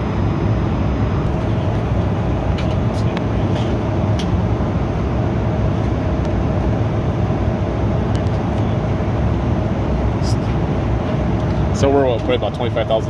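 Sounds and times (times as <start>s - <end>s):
airliner cabin drone: 0.0s - 13.0s.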